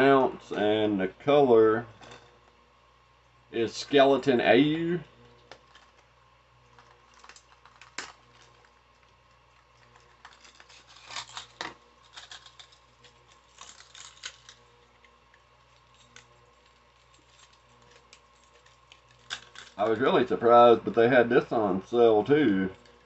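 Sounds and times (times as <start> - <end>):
plastic packaging crackling: 5.3 - 20.9.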